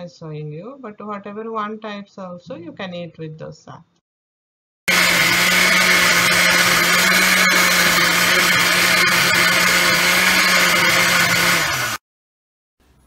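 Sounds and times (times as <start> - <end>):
mixer grinder running: 4.9 - 12.0.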